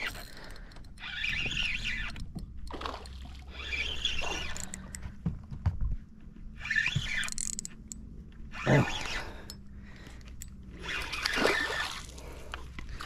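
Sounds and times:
water splashing against boat: 0:10.9 - 0:13.0.

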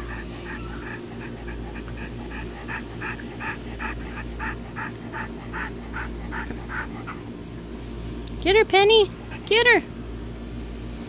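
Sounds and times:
dog panting: 0:00.0 - 0:07.7, 0:09.1 - 0:09.8.

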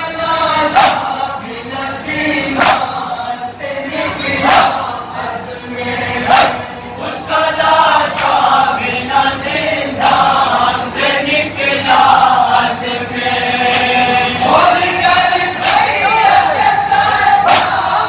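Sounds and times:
men chanting in unison: 0:00.0 - 0:18.0
chest-beating slaps: 0:00.7 - 0:01.1, 0:02.6 - 0:02.9, 0:17.4 - 0:17.8.

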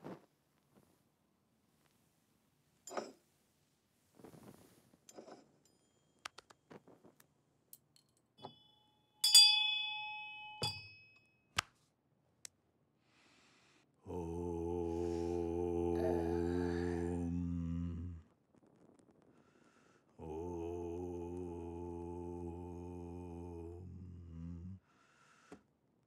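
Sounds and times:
faint rustles and clicks: 0:04.0 - 0:05.7
hand bell ringing: 0:08.5 - 0:11.3
low hummed chant: 0:14.0 - 0:18.4, 0:20.2 - 0:24.9.

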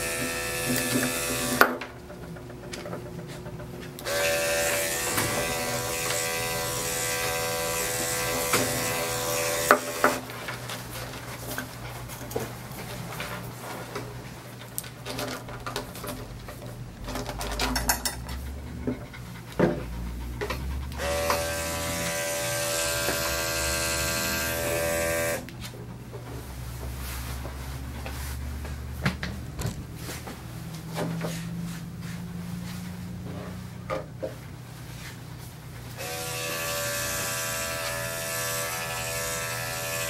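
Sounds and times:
electric clippers buzzing: 0:00.0 - 0:01.8, 0:04.0 - 0:10.3, 0:21.0 - 0:25.5, 0:36.0 - 0:40.0.

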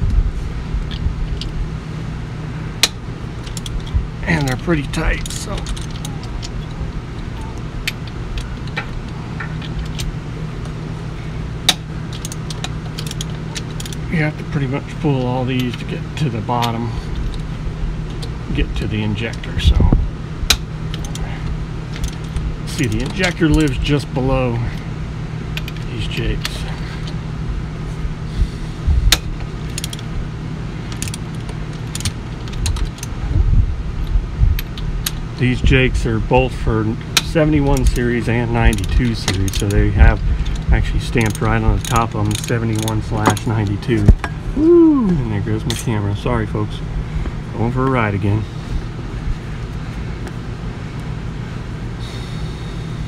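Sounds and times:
low background hum: 0:00.0 - 0:53.0
ratchet wrench clicking on metal: 0:37.2 - 0:44.3.

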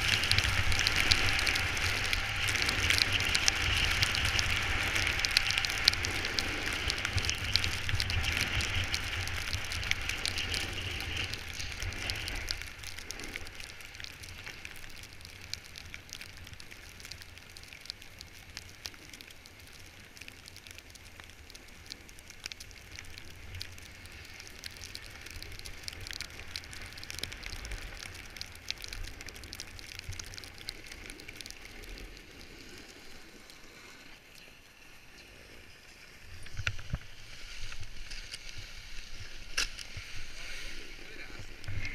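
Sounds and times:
snowboard scraping over snow: 0:00.0 - 0:14.5
wind rumbling on microphone: 0:00.0 - 0:34.3, 0:35.1 - 0:41.9.

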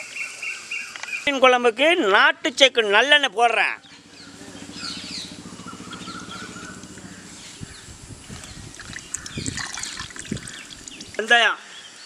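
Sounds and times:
low hum: 0:03.8 - 0:11.2
oil trickling into a pot: 0:08.7 - 0:11.3.

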